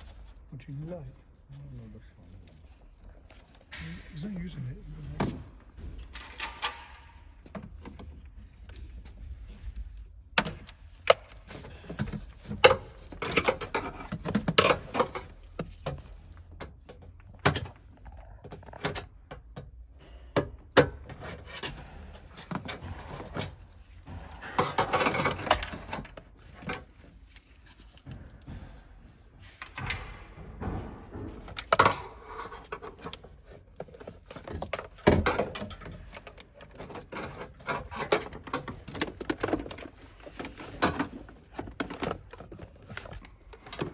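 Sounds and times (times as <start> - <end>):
scraping and handling noise: 0.0 - 43.9.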